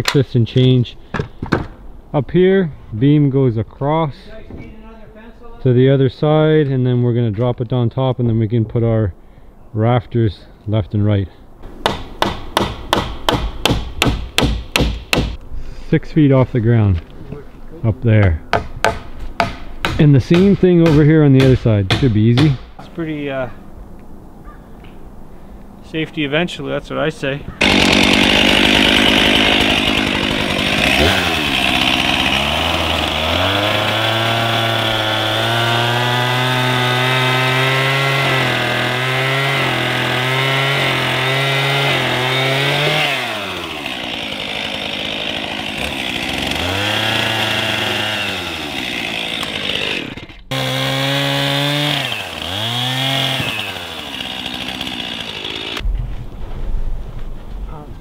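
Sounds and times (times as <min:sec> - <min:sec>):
chainsaw revving and cutting wood: 0:27.6 - 0:55.8.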